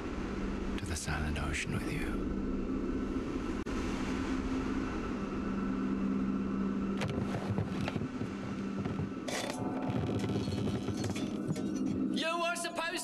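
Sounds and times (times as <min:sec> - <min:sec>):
crackling knocks: 0:07.0 - 0:12.0.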